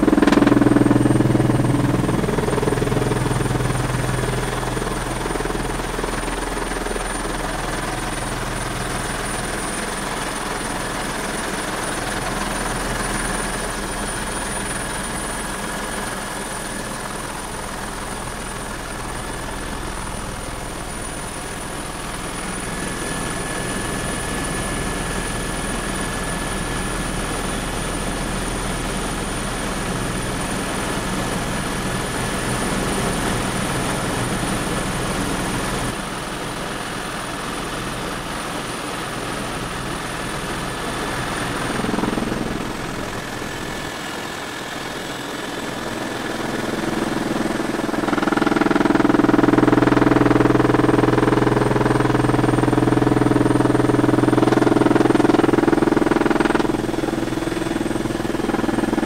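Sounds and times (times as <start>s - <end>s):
high steady whine: 0.0s - 26.0s
helicopter engine and rotor: 0.0s - 59.0s.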